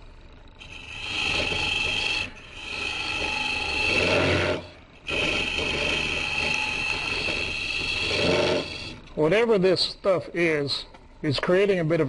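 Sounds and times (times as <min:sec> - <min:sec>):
lathe humming: 0:00.0 - 0:09.6
hollowing tool scraping wood: 0:00.6 - 0:09.1.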